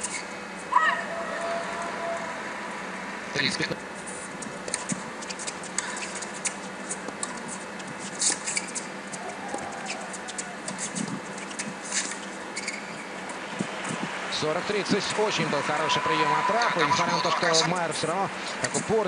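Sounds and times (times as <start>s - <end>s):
shoe squeak: 4.6s - 14.0s.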